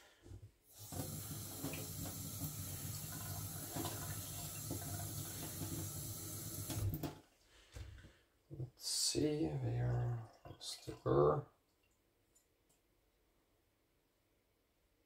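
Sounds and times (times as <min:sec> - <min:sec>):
tap water running into sink: 0:00.7 - 0:07.2.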